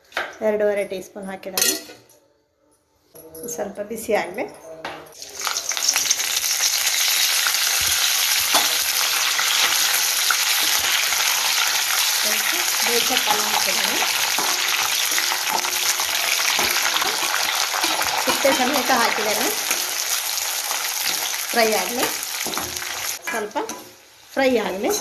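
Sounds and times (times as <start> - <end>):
leaves sizzling in hot oil: 5.2 - 25.0
ladle stirring: 12.8 - 21.4.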